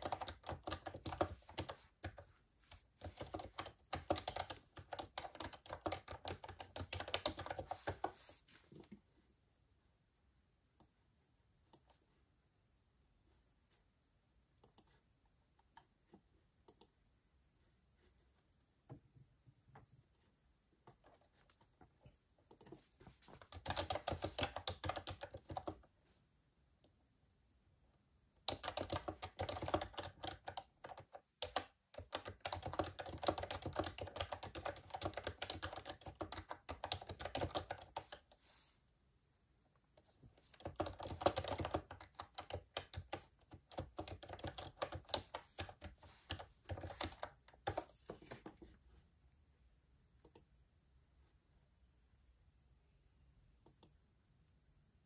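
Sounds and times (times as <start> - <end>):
typing on computer keyboard: 0.0 - 8.2, 22.5 - 25.9, 28.4 - 38.3, 40.4 - 48.4.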